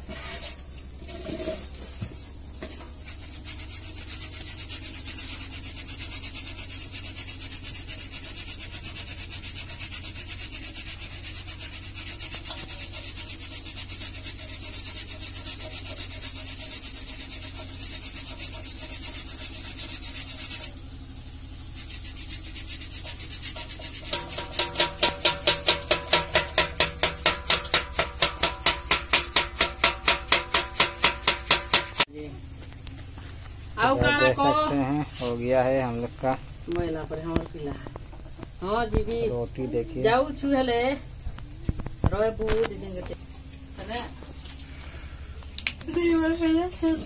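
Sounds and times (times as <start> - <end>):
batter deep-frying in oil: 0.0 - 32.1.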